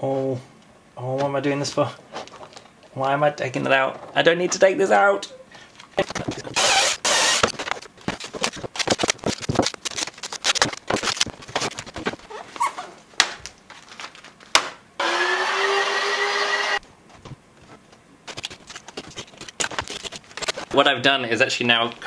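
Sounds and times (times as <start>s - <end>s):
cordless drill running: 6.6s - 7.5s, 15.0s - 16.8s
small electric motor spinning: 6.6s - 7.5s, 15.0s - 16.8s.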